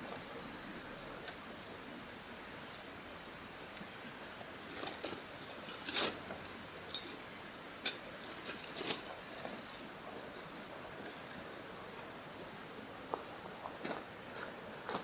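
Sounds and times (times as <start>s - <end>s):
metal tent pegs clinking: 4.5s - 6.3s, 6.9s - 9.8s.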